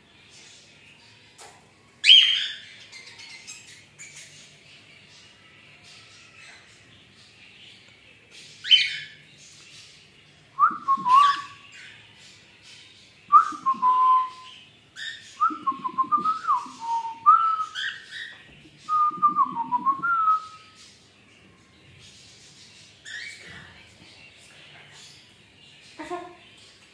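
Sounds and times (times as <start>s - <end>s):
cockatiel whistling: 10.6s - 11.5s.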